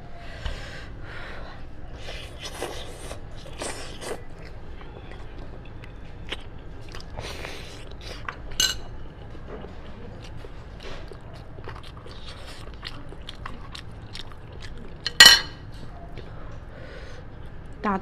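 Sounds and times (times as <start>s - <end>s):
person chewing meat: 2.0s - 15.2s.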